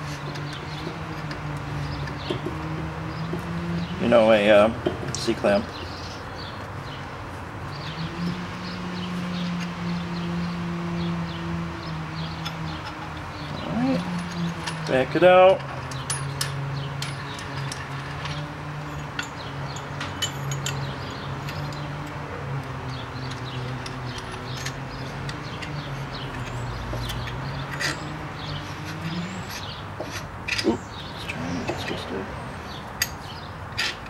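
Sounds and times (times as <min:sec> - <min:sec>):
small metal clicks: 0:12.3 - 0:15.0, 0:15.6 - 0:18.4, 0:19.0 - 0:32.0.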